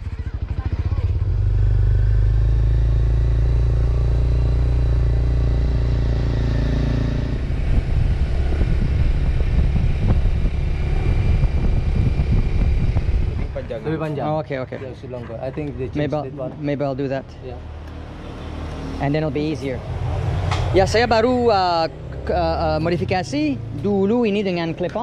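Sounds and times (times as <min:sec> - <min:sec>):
motorcycle engine running: 0:00.0 - 0:14.1.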